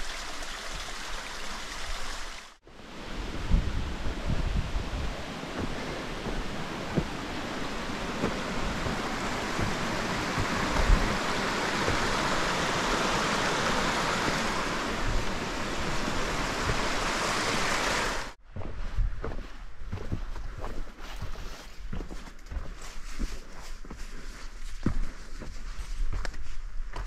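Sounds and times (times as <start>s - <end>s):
creek rushing over rocks: 0.0s - 18.4s.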